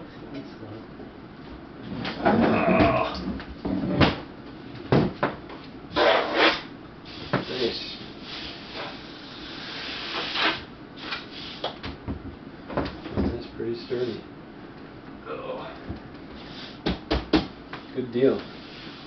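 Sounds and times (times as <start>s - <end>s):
scraping and rubbing on a table: 5.9s - 7.6s.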